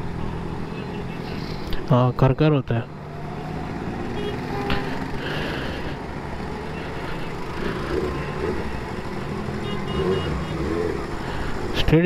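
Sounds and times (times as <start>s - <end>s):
traffic: 0.0s - 12.0s
motorcycle engine: 2.9s - 12.0s.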